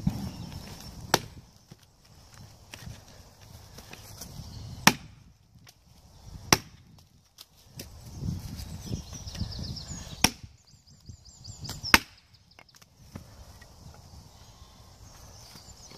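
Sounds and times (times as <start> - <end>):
hatchet chopping wood: 1.0 - 1.8, 3.8 - 5.8, 6.4 - 8.0, 10.1 - 10.6, 11.7 - 13.7.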